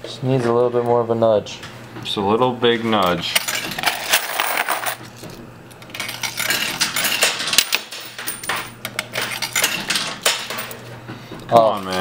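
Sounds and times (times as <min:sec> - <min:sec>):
metal coins clattering: 0:03.3 - 0:10.8.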